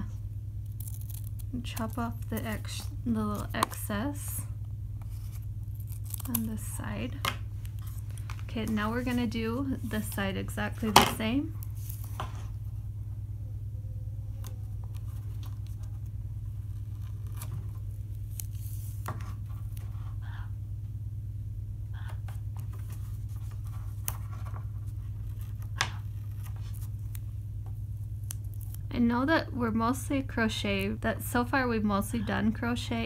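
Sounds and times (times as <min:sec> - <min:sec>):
steady low hum: 0:00.0 - 0:33.0
paper rustling: 0:05.0 - 0:06.8, 0:07.5 - 0:12.6, 0:14.3 - 0:20.1, 0:22.5 - 0:27.3.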